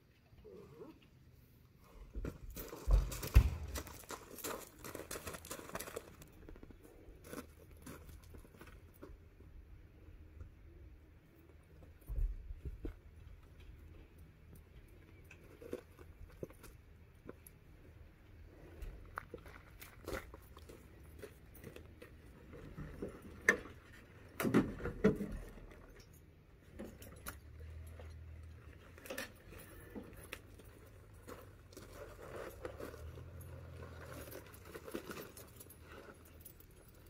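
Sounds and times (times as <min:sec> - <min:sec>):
knocks and thumps: 0:02.2 - 0:04.0
light metallic jingling and clicking: 0:25.8 - 0:37.0.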